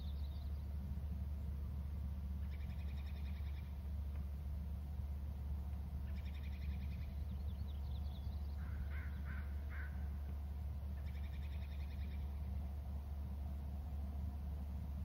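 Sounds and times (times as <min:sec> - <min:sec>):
steady low hum: 0:00.0 - 0:15.0
wild birds calling: 0:06.0 - 0:12.6.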